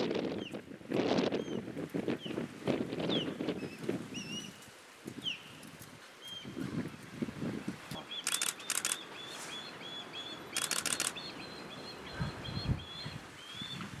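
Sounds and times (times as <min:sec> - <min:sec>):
rapid clicking: 0:08.2 - 0:09.0, 0:10.6 - 0:11.2.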